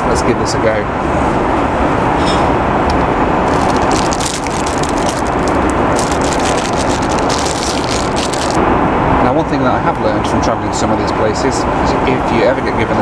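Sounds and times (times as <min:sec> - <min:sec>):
airplane cabin roar: 0:00.9 - 0:13.0
plastic wrapper crinkling: 0:03.4 - 0:08.6.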